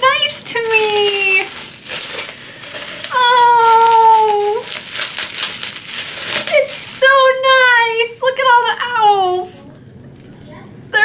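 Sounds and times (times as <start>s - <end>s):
bubble wrap crinkling: 0.0s - 7.0s.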